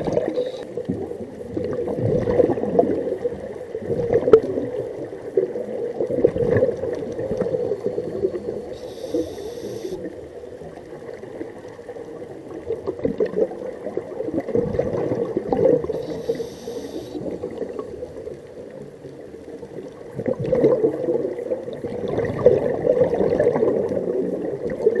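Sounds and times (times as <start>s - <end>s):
regulator hissing inhales: 8.7s - 10.0s, 16.0s - 17.3s.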